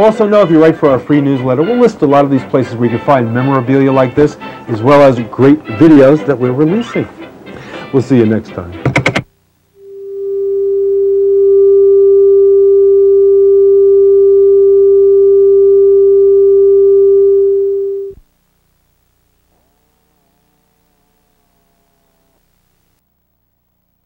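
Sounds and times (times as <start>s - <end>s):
single-pitch test tone: 9.8s - 18.2s.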